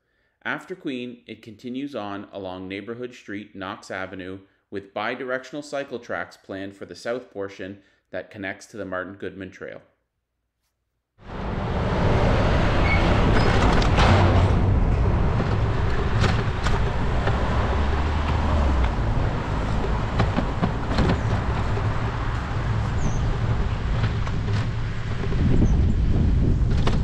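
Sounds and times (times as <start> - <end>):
road traffic: 11.2 - 27.0
wind rumbling on microphone: 11.3 - 27.0.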